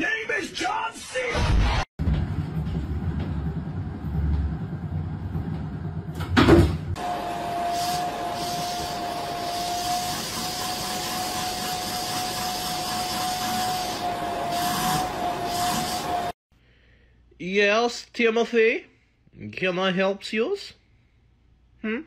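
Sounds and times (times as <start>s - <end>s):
vacuum cleaner running: 6.9s - 16.4s.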